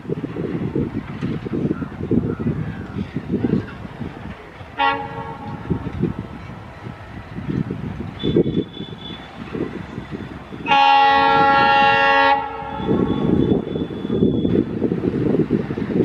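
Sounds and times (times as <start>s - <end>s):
train rumbling on rails: 0.0s - 16.0s
train horn blast: 4.8s - 5.6s, 10.6s - 14.0s.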